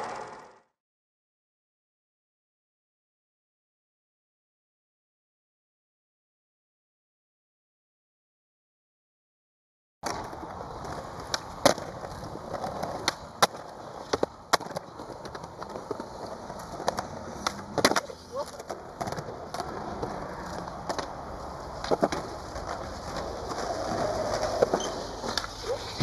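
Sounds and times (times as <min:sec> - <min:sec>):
skateboard clacking: 0:00.0 - 0:00.6, 0:10.0 - 0:26.0
skateboard wheels rolling: 0:00.0 - 0:00.6, 0:10.0 - 0:26.0.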